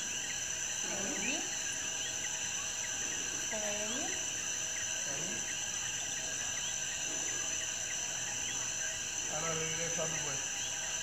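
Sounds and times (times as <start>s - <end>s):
high-pitched insect buzz: 0.0s - 11.0s
insect chirps: 0.0s - 11.0s.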